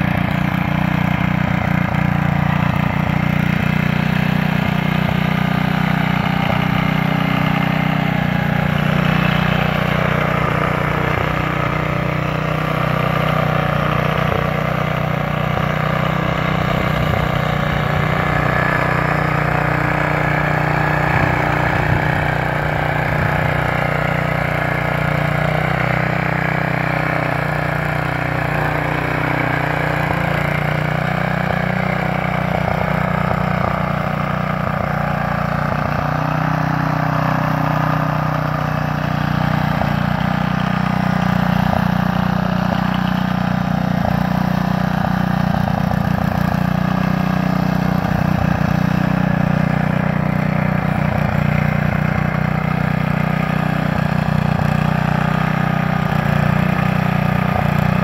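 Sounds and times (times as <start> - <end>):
tiller engine running under load: 0.0 - 58.0.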